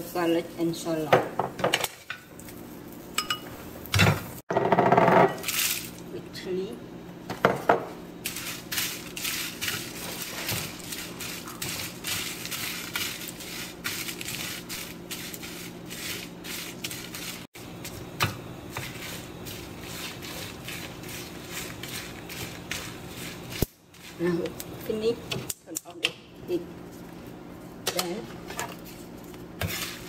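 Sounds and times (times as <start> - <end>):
chilies crackling in a pan: 18.8 - 24.9.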